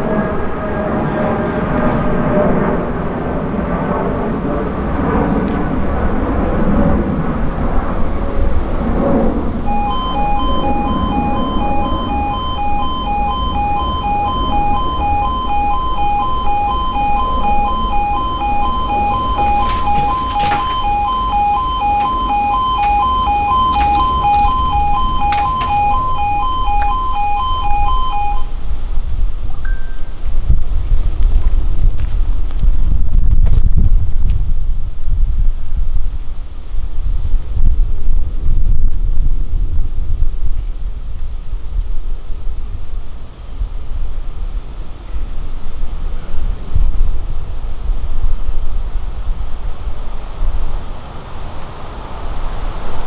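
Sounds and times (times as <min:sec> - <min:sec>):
low rumbling noise: 0:00.0 - 0:53.0
pulsing level crossing alarm: 0:09.6 - 0:28.6
sharp clicks: 0:19.4 - 0:25.9.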